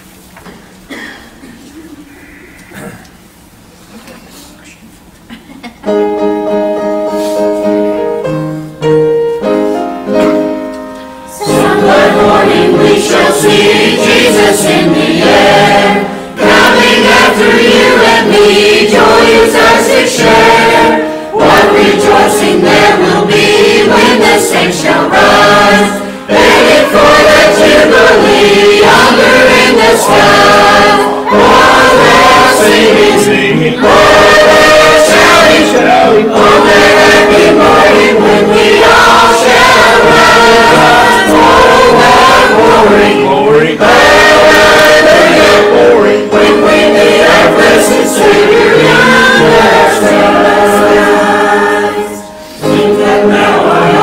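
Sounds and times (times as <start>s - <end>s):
choir singing a hymn: 11.2s - 54.0s.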